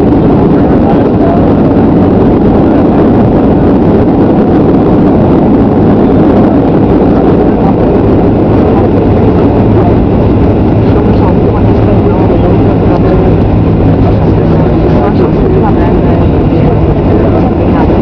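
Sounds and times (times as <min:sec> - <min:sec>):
jet engines and rushing air: 0:00.0 - 0:18.0
low hum: 0:00.0 - 0:18.0.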